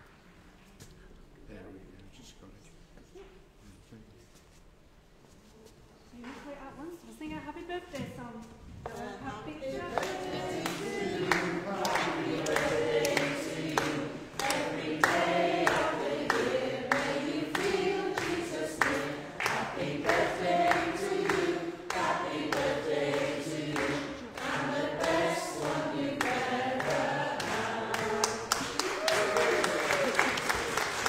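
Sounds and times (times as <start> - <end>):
congregation singing: 8.8 - 30.9
people clapping along: 8.9 - 31.0.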